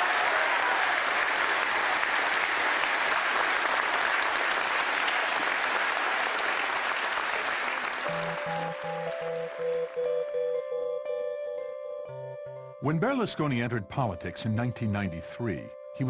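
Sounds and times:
crowd applauding: 0.0 - 10.6.

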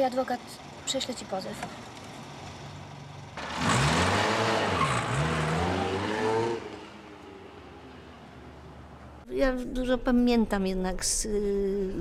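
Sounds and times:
car engine idling and revving: 0.0 - 9.3.

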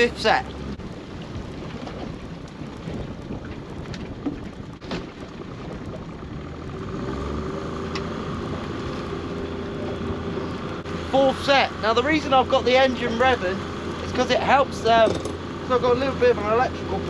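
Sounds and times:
boat engine running: 0.0 - 17.0
wind buffeting microphone: 0.0 - 17.0.

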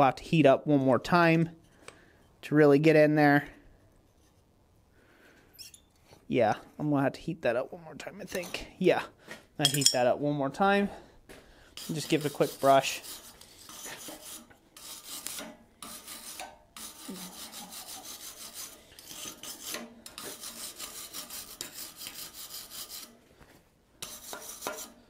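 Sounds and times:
wire brush scrubbing metal: 11.8 - 23.2, 24.0 - 25.0.

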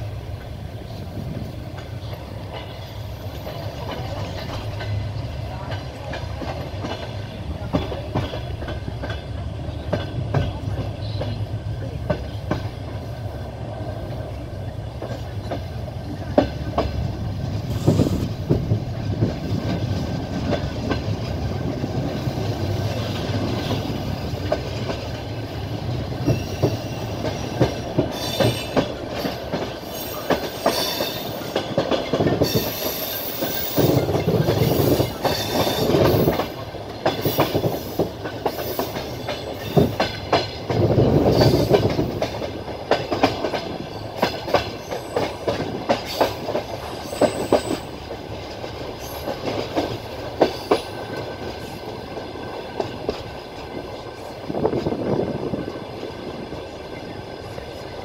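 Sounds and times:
train wheels clacking on rails: 0.0 - 58.0
train wheels squealing: 26.2 - 31.7, 32.4 - 36.5, 37.2 - 40.1, 43.8 - 48.0, 49.0 - 49.4.

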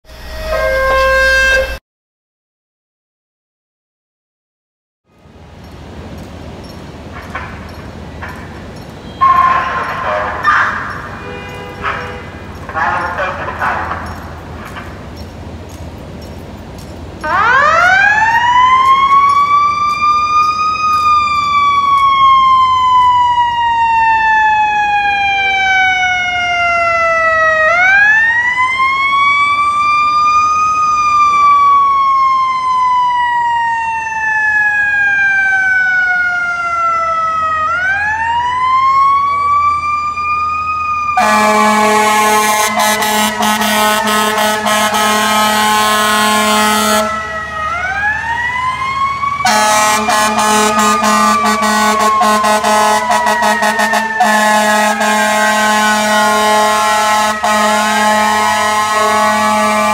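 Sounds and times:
air horn blasts: 0.1 - 1.8, 9.0 - 13.4, 41.2 - 47.3, 49.4 - 59.9
electronic siren wailing: 0.1 - 1.8, 9.1 - 14.3, 17.2 - 59.9.

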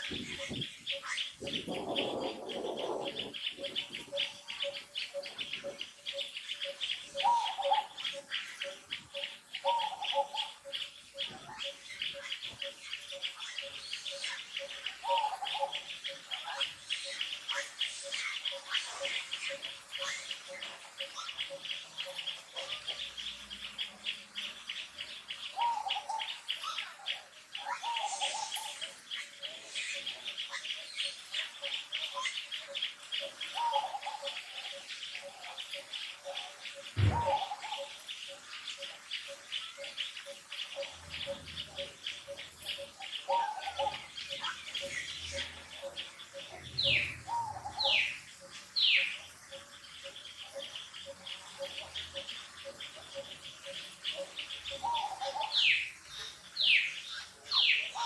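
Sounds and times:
loud descending bird calls: 36.9 - 37.9
sharp knock: 37.0 - 37.4.

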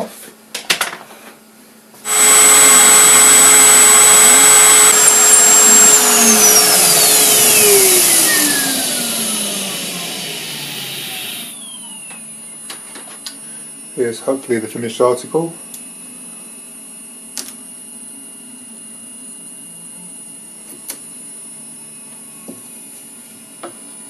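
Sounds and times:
vacuum cleaner rushing: 2.1 - 11.5
router motor whining: 2.1 - 11.6
motor winding down: 2.1 - 11.8.

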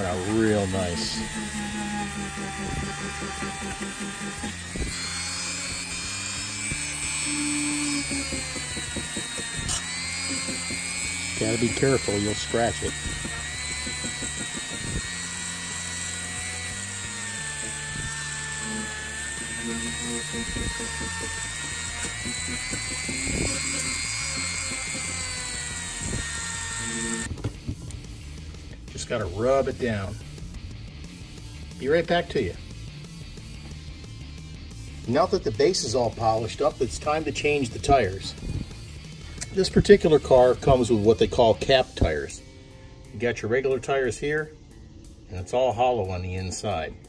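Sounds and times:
rotary tool whine on metal: 0.0 - 27.4
background music: 0.0 - 47.0.

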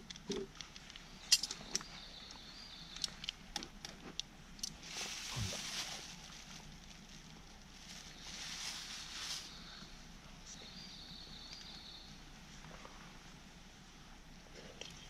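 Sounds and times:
camp cooking gear clicks: 0.0 - 4.8
plastic bag rustling: 4.8 - 9.6.

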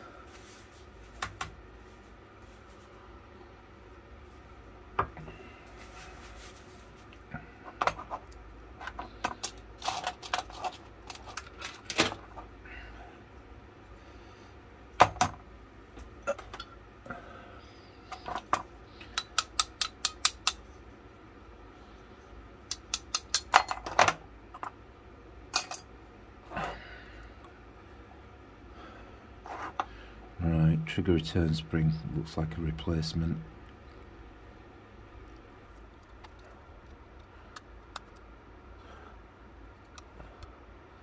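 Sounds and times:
metallic clicks of gun parts: 18.3 - 20.6, 22.7 - 23.9.

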